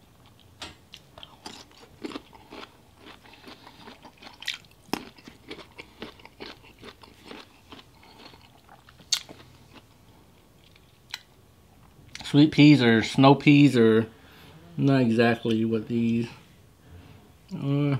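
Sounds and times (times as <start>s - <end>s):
person chewing and crunching: 0.2s - 11.3s.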